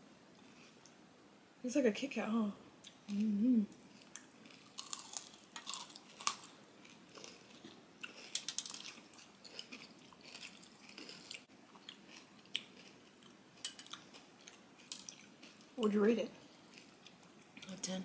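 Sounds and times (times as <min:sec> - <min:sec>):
crunchy chewing and biting: 0:03.9 - 0:15.7.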